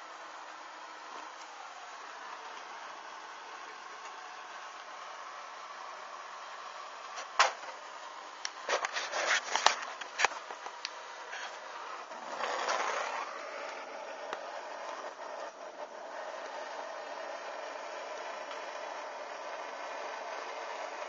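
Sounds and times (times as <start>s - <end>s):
sharp crackles and knocks: 8.5s - 11.6s.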